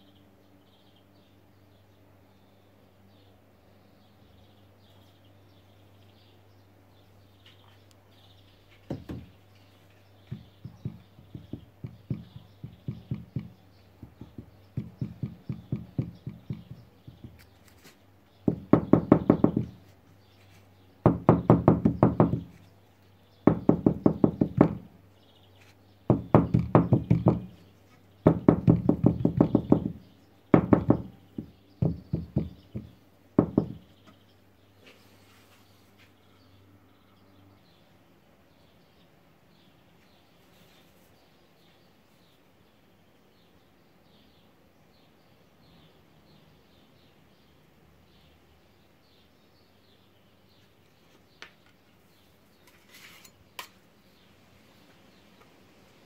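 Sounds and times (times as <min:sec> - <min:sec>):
mould knocking on workbench: 0:08.9 - 0:09.3, 0:10.3 - 0:17.5, 0:18.5 - 0:19.8, 0:26.1 - 0:27.6, 0:28.3 - 0:34.2.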